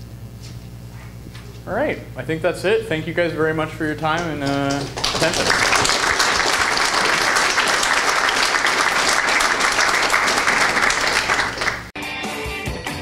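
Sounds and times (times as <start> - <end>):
audience applause: 4.2 - 11.9.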